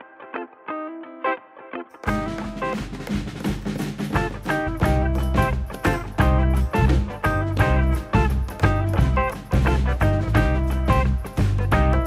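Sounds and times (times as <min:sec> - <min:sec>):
plucked guitar: 0:00.0 - 0:12.0
steady bass beat: 0:03.0 - 0:12.0.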